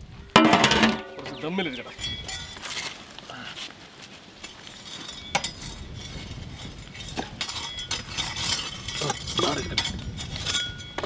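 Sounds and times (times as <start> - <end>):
metal utensils and pots clinking: 0.4 - 2.6, 4.4 - 11.0.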